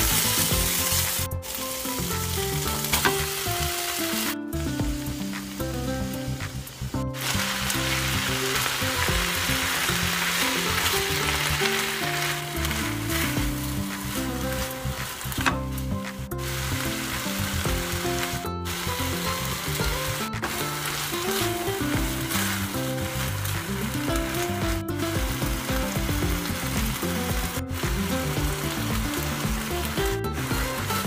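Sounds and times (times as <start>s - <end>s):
food sizzling in a hot wok: 0.0s - 31.0s
soft background music: 0.0s - 31.0s
spatula stirring in wok: 7.2s - 31.0s.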